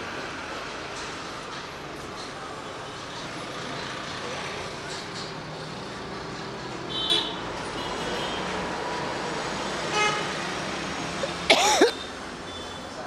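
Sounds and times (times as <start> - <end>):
road traffic noise: 0.0 - 13.0
vehicle horn toots: 6.9 - 7.4, 9.9 - 10.3.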